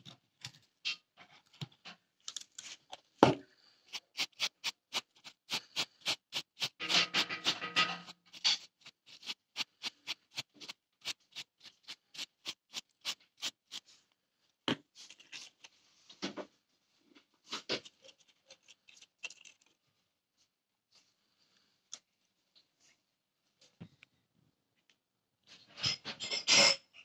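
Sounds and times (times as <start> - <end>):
scrapes and taps: 3.9 - 13.8
brush sweeping sand off metal: 4.0 - 14.0.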